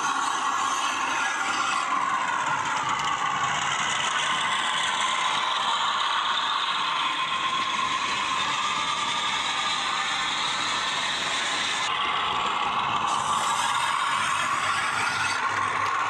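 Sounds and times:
model train clatter on track: 0.0s - 16.0s.

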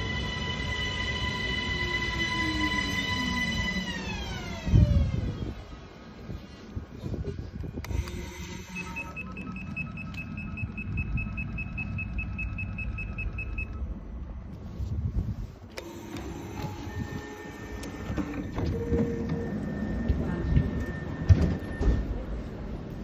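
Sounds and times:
steady high tone: 0.0s - 5.4s
electric sliding doors opening: 0.0s - 6.2s, 7.7s - 14.2s, 15.7s - 23.0s
low train rumble: 0.0s - 23.0s
rapid door beeps: 7.9s - 13.9s, 16.6s - 22.4s.

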